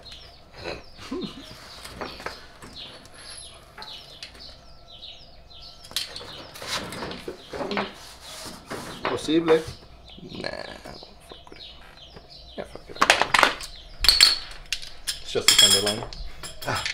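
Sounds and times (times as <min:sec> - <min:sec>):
small birds chirping: 0:00.0 - 0:16.9
sharp knocks and clanks: 0:05.8 - 0:09.8, 0:12.9 - 0:16.9.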